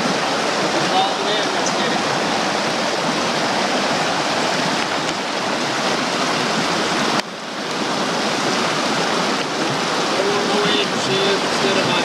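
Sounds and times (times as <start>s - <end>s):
creek rushing over rocks: 0.0s - 12.0s.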